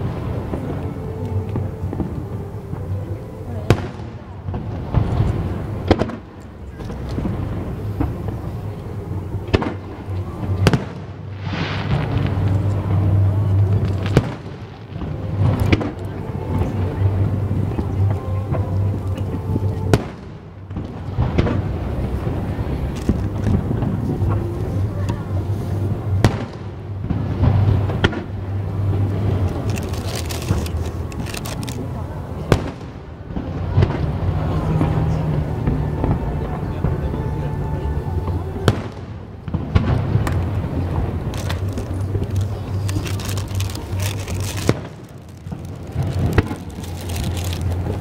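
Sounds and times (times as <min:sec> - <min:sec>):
steady low rumble: 0:00.0 - 0:48.0
distant fireworks bangs: 0:03.7 - 0:18.9, 0:25.9 - 0:31.3, 0:32.3 - 0:37.0, 0:38.6 - 0:48.0
firework shells bursting: 0:38.7 - 0:48.0.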